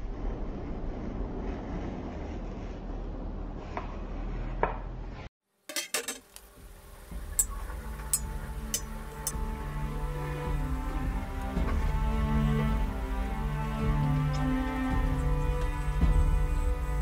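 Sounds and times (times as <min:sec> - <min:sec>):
steady hiss: 0:05.7 - 0:17.0
background music: 0:06.4 - 0:17.0.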